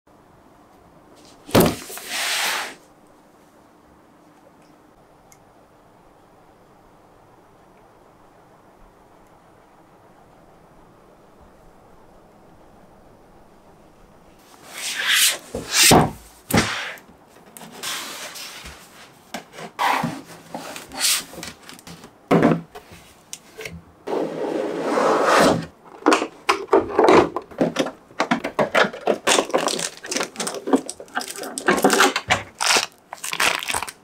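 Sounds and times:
plastic packaging crackling: 28.5s - 34.0s.

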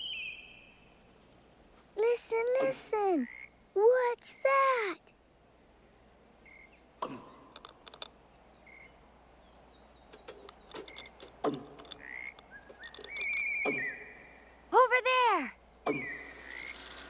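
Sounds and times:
sharp clicks: 7.0s - 8.2s, 10.1s - 14.0s.

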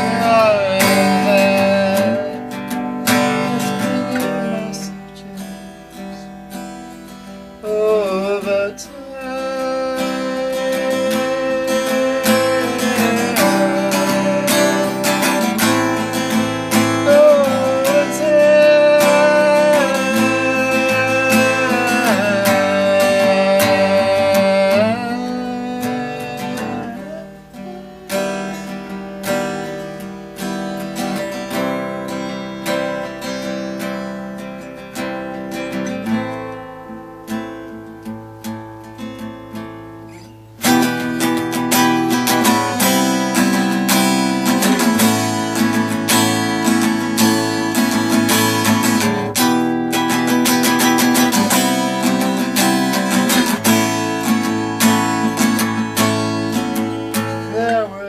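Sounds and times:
man singing long notes: 0.0s - 6.4s, 7.6s - 29.8s, 41.7s - 45.4s, 55.9s - 58.0s
acoustic guitar: 0.0s - 58.0s.

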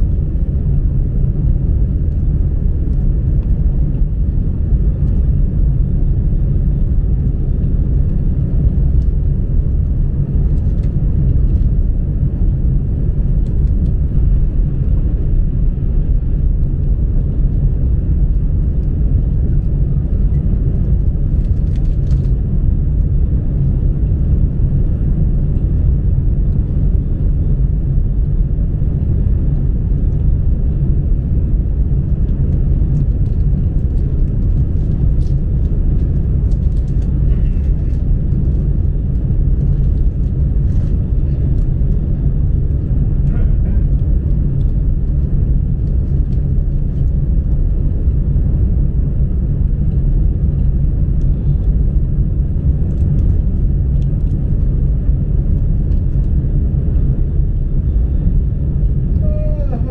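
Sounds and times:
train cabin rumble: 31.1s - 47.9s, 58.3s - 59.9s.

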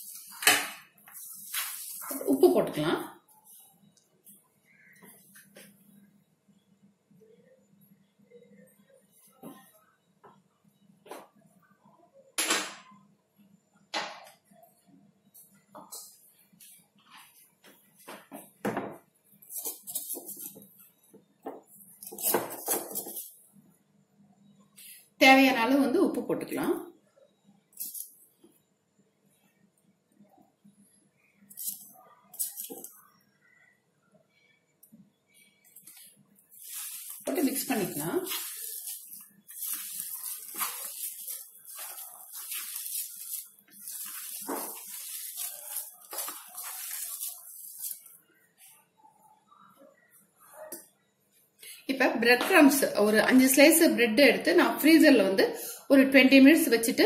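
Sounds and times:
hands kneading mixture in bowl: 1.1s - 3.8s, 35.8s - 48.2s.

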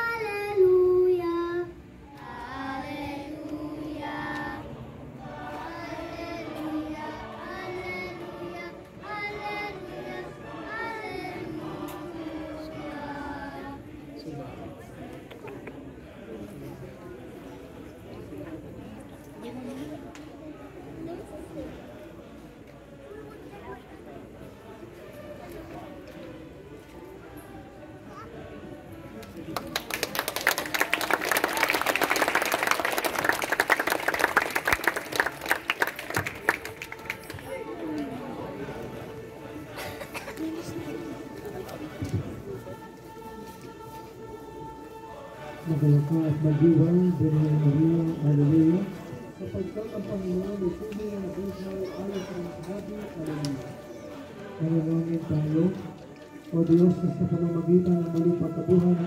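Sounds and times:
children's choir singing: 0.0s - 15.1s, 31.8s - 49.3s
crowd applauding: 29.2s - 37.7s.

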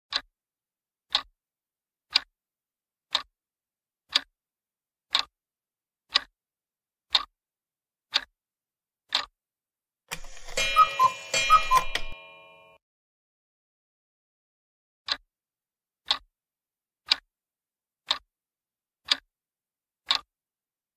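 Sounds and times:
timer ticking: 1.1s - 1.3s, 2.1s - 2.3s, 3.1s - 3.3s, 5.1s - 5.3s, 6.1s - 6.3s, 7.1s - 7.3s, 8.1s - 8.3s, 9.1s - 9.3s, 10.1s - 12.8s, 16.0s - 16.3s, 19.0s - 19.3s, 20.1s - 20.3s
correct-answer jingle: 10.1s - 12.8s.

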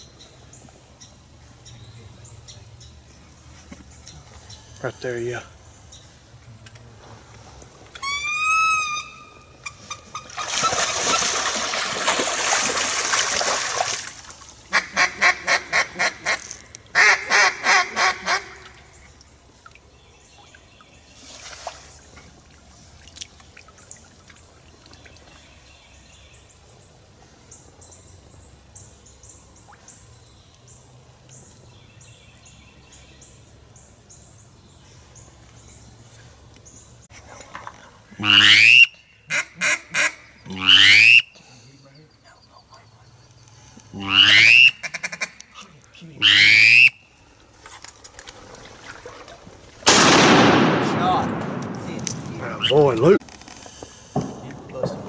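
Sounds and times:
duck quacking: 14.7s - 16.4s, 17.0s - 18.7s, 38.2s - 41.3s, 44.0s - 45.4s, 46.2s - 47.0s.

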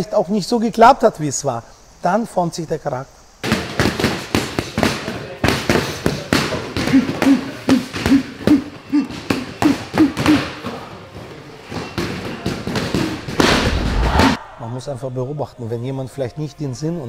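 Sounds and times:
punches hitting focus mitts: 3.4s - 10.9s.

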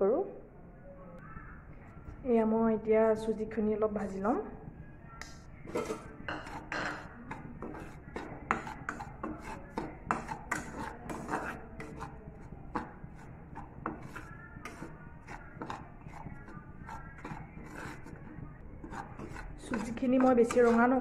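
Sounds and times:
spoon scraping dry semolina: 5.6s - 21.0s.

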